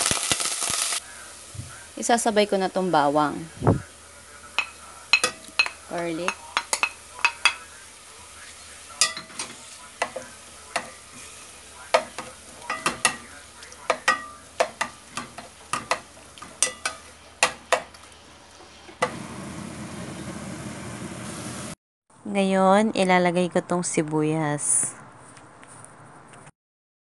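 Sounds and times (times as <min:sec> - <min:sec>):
loud steady hiss: 0:00.0 - 0:05.2
meat sizzling: 0:00.0 - 0:21.8
wooden spoon clacking on metal pot: 0:04.6 - 0:07.6, 0:11.9 - 0:18.0.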